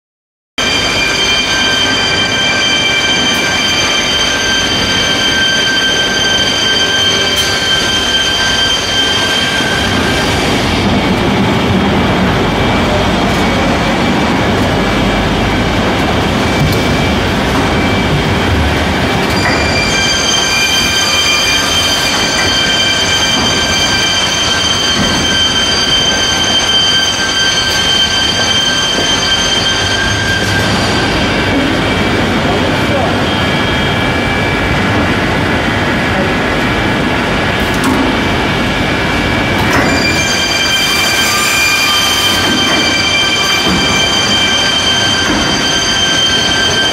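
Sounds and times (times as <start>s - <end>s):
high whining tones: 0.6s - 46.9s
machine running: 0.6s - 46.9s.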